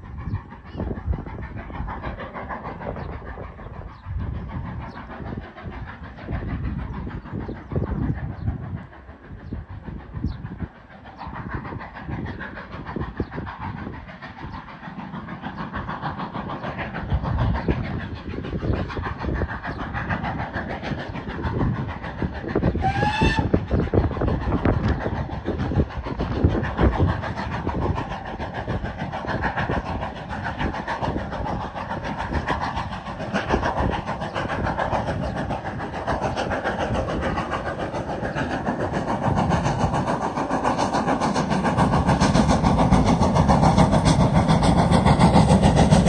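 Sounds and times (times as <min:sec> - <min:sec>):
steam train running: 0:00.0 - 0:46.0
train whistle blast: 0:22.8 - 0:23.5.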